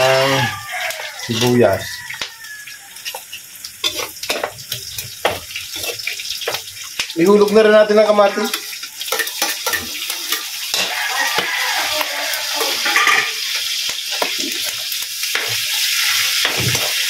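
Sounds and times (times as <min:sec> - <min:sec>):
meat sizzling in a wok: 0:00.0 - 0:17.0
metal spatula scraping wok: 0:03.0 - 0:06.6, 0:08.3 - 0:17.0.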